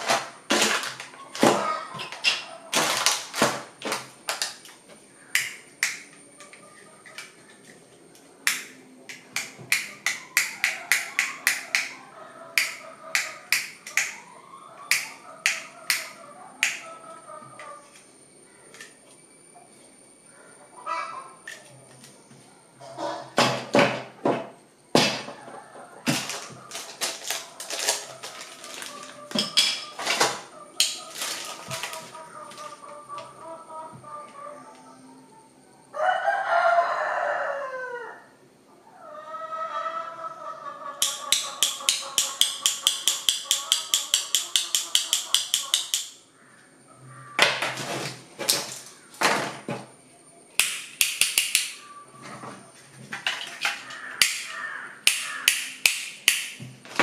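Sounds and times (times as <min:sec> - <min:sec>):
plastic packaging crinkling: 0:00.0 - 0:04.8, 0:26.1 - 0:30.2, 0:30.8 - 0:32.7
sharp clicks: 0:05.3 - 0:07.3, 0:12.6 - 0:14.2, 0:41.0 - 0:46.2, 0:50.6 - 0:51.8, 0:54.2 - 0:56.6
rooster crowing: 0:09.7 - 0:18.7, 0:25.2 - 0:42.2, 0:53.8 - 0:55.6
rocker switch clicking: 0:55.0 - 0:56.6.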